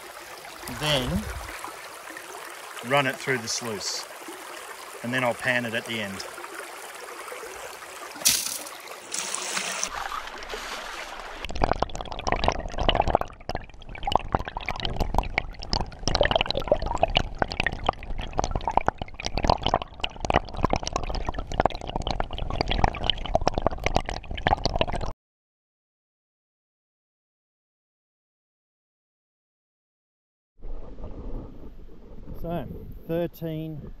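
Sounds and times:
water rushing through sluice: 0.0 - 11.5
gravel and stones rattling: 8.2 - 11.1
water poured over gravel: 8.2 - 13.2.

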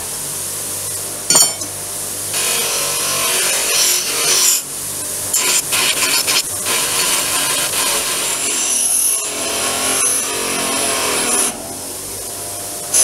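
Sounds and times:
bench grinder humming: 2.3 - 13.0
steel grinding on wheel: 2.4 - 11.7.

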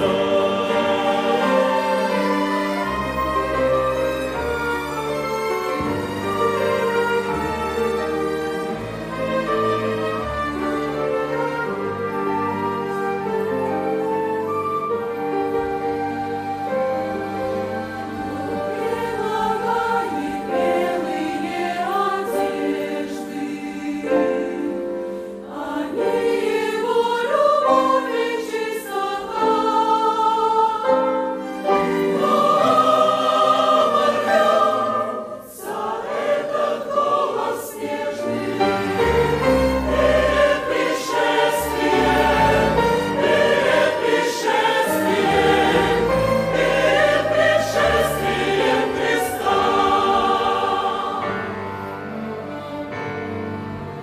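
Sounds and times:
flutes: 0.0 - 7.8, 9.1 - 21.7
mixed choir singing a hymn: 0.0 - 13.9, 15.6 - 54.0
violins: 0.0 - 54.0.

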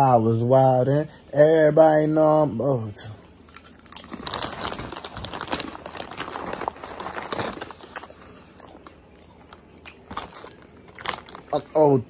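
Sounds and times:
plastic chip bag crinkling: 3.4 - 12.0.

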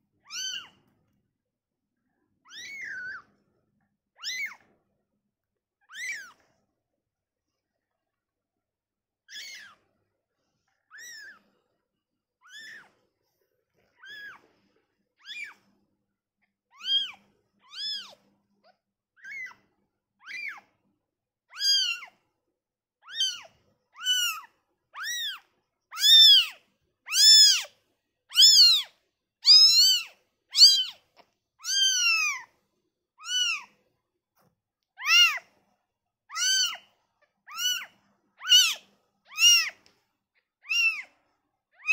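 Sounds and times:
kitten mewing: 24.0 - 27.7, 28.3 - 31.0, 31.6 - 32.5, 33.2 - 33.8, 35.0 - 35.4, 36.3 - 36.8, 37.5 - 39.8, 40.6 - 41.1.

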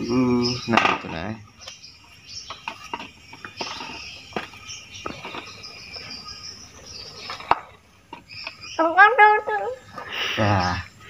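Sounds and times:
trowel scraping soil in plastic pot: 2.7 - 6.2.

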